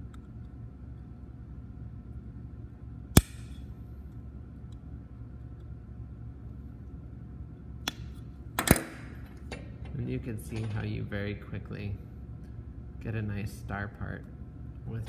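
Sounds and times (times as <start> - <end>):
low steady hum: 0.0 - 15.0
cutters snapping metal: 3.2 - 3.6.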